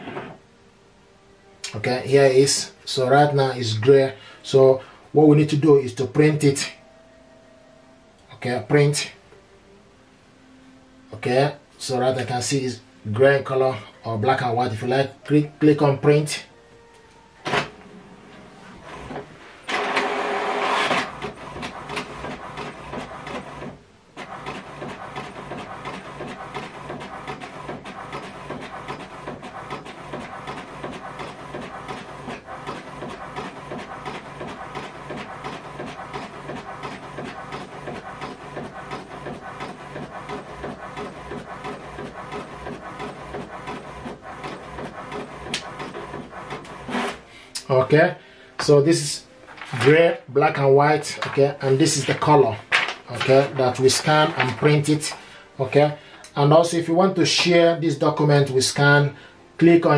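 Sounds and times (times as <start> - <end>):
printer start-up burst: 18.8 - 47.2
printing mechanism clattering: 19.0 - 47.2, 51.1 - 55.2
printer click: 19.1 - 31.7.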